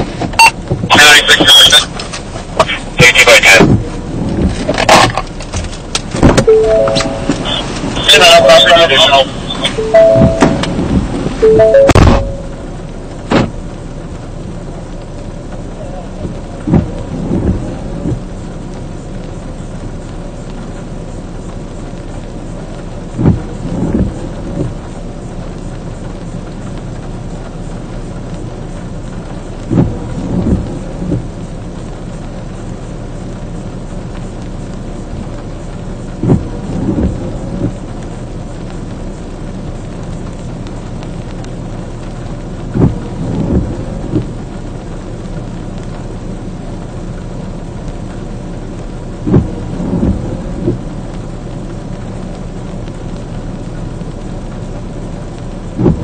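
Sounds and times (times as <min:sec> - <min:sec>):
rain: 0:00.0 - 0:56.0
windshield wipers thumping: 0:00.0 - 0:56.0
fire truck engine idling: 0:06.5 - 0:10.8.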